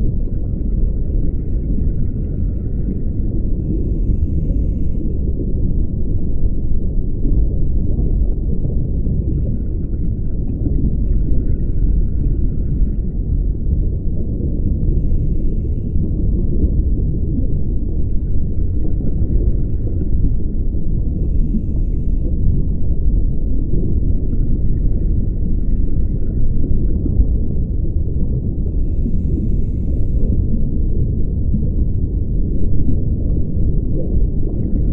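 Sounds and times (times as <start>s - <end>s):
bubbling rush of exhaled air: 0.0s - 5.8s, 7.1s - 34.9s
low rumble of water noise: 0.0s - 34.9s
diver breathing through regulator: 3.6s - 5.3s, 14.9s - 16.2s, 21.2s - 22.4s, 28.7s - 30.5s.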